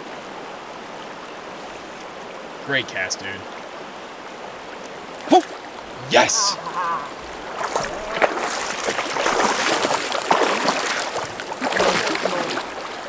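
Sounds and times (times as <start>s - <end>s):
flowing water rushing: 0.0s - 13.0s
splashing in a stream: 4.7s - 13.0s.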